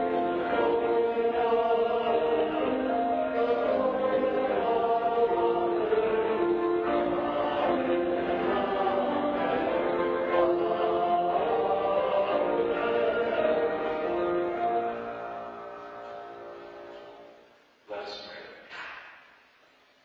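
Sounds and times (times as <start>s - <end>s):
group singing a hymn: 0.0s - 15.7s.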